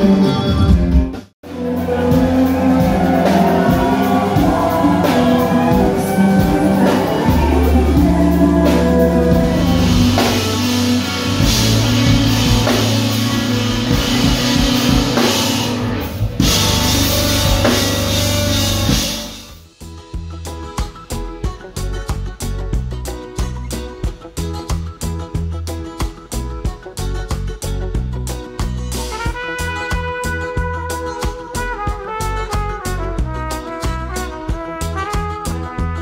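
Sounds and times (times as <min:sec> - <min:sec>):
live rock band playing: 0:00.0 - 0:36.0
cymbals: 0:01.5 - 0:19.6.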